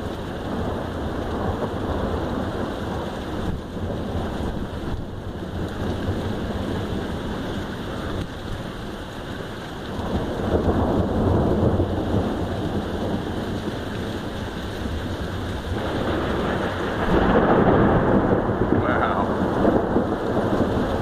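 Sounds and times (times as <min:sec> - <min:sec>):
heavy rain falling: 0:00.0 - 0:21.0
thunder rumble: 0:09.9 - 0:21.0.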